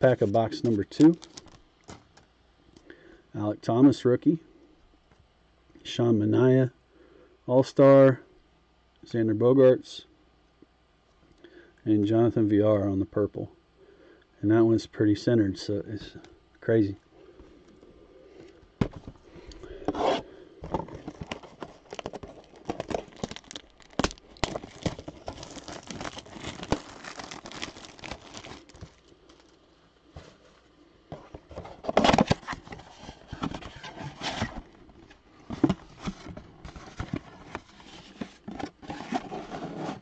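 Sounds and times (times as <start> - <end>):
cardboard box rustling and scraping: 19.8 - 29.5, 30.1 - 40.0.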